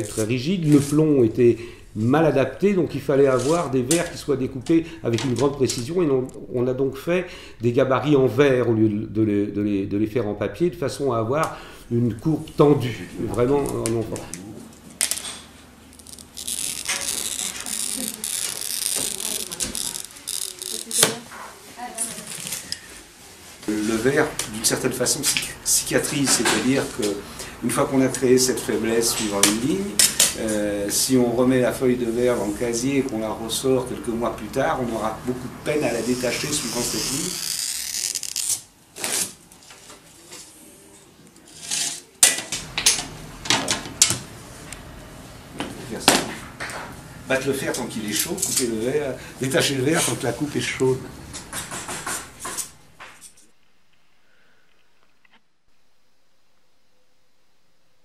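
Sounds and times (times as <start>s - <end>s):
glass cutter scoring glass: 15.9s - 21.2s, 35.9s - 39.4s, 41.4s - 43.0s, 51.3s - 53.4s
paper rustling: 16.0s - 24.6s.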